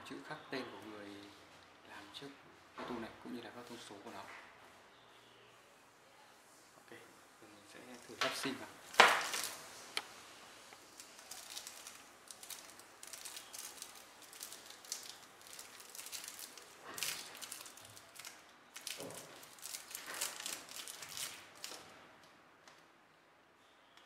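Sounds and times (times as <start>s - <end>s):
plastic bag crinkling: 7.8s - 22.0s.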